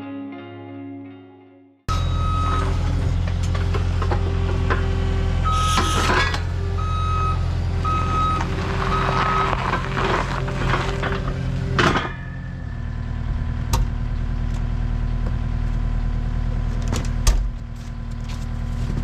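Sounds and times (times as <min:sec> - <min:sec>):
reversing alarm beeping: 0:01.9 - 0:03.2, 0:05.4 - 0:10.1
diesel engine running: 0:01.9 - 0:19.0
metal clanks: 0:08.5 - 0:12.8.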